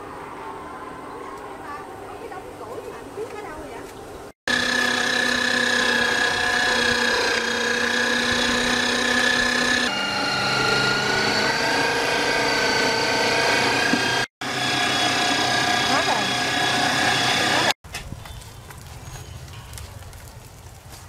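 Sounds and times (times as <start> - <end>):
electric meat grinder whining: 4.5 - 17.8.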